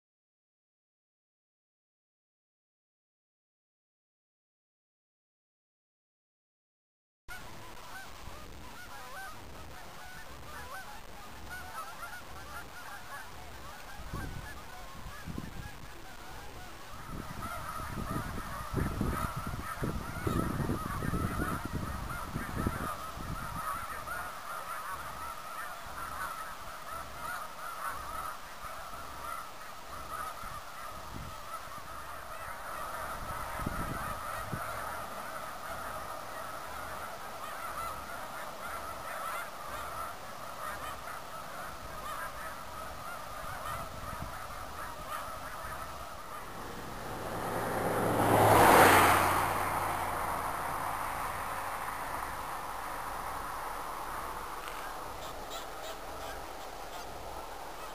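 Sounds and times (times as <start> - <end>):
geese honking: 7.3 - 57.9
loud rushing noise: 46.2 - 55.2.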